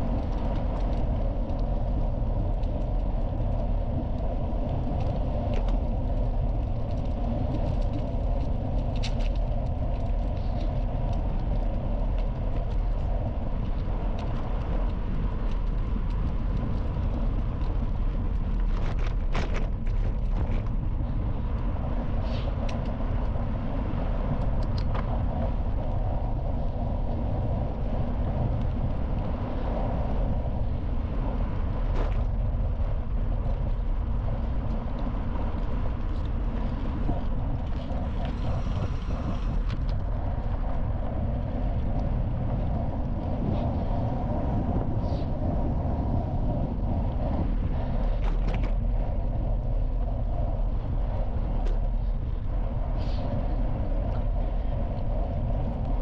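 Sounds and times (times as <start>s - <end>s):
bicycle tyres rolling on gravel: 0.0s - 56.0s
wind rumble on microphone: 0.0s - 56.0s.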